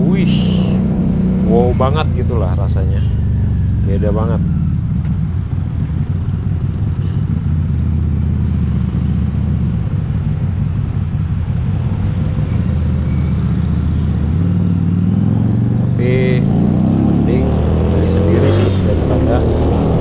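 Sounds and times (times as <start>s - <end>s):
motorcycle engine at low revs: 0.0s - 20.0s.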